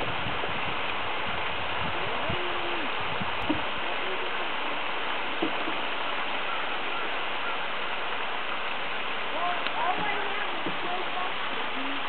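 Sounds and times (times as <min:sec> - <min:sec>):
water rushing down a waterfall: 0:00.0 - 0:12.0
faint distant voices: 0:02.0 - 0:07.8, 0:09.3 - 0:12.0.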